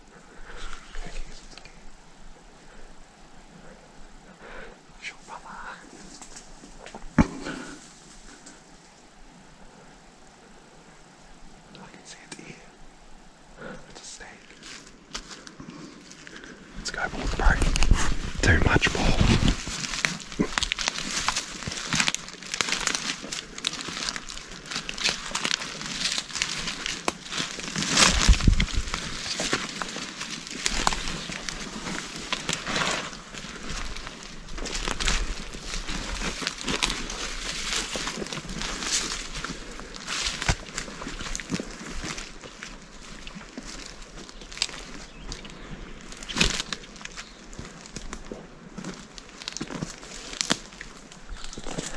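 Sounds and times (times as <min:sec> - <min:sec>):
branches brushing against clothing: 0:00.0 - 0:04.2, 0:05.0 - 0:12.8, 0:14.0 - 0:51.9
twigs crackling: 0:00.0 - 0:10.0, 0:13.6 - 0:51.9
footsteps through leaf litter: 0:14.2 - 0:51.9.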